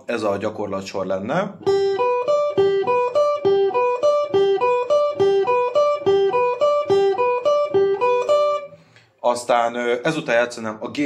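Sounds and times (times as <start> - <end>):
electric guitar arpeggios: 1.5 - 9.0.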